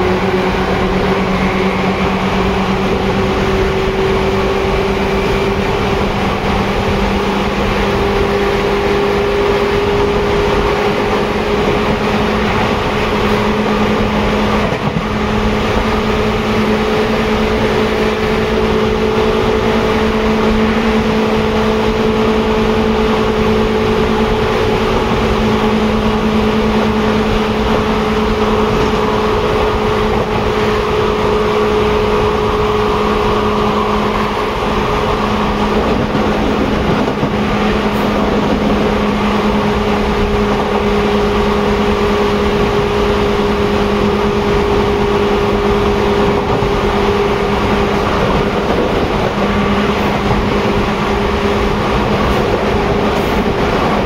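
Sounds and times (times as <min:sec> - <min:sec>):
train motor whine rising: 0:00.0 - 0:54.0
train wheels rumbling on rail: 0:00.0 - 0:54.0.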